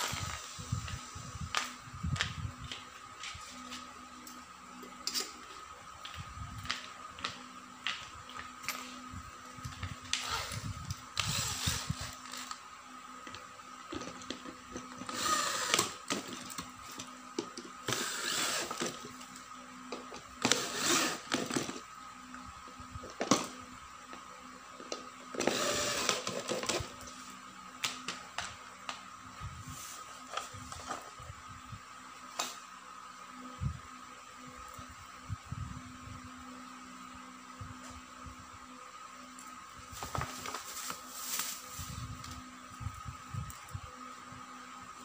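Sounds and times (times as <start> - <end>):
electric drill driving screws: 0.0 - 0.6, 9.6 - 12.6, 13.2 - 21.8, 25.3 - 27.3.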